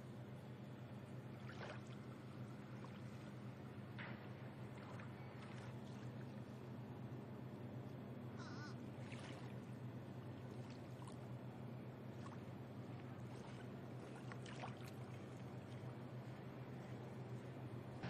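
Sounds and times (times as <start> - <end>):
steady low hum: 0.0 - 18.0
faint bird calls: 8.3 - 8.8
small waves washing on beach: 12.0 - 16.4.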